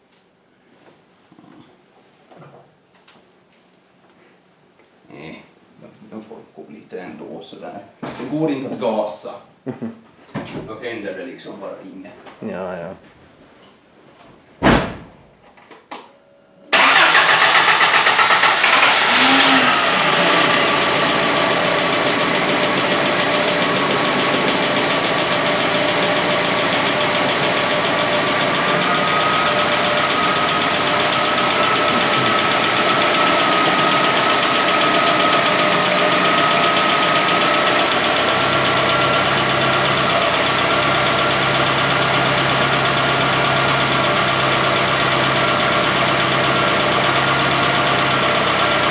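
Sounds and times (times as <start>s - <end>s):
car engine starting and idling: 16.7s - 48.9s
engine ticking: 16.8s - 48.9s.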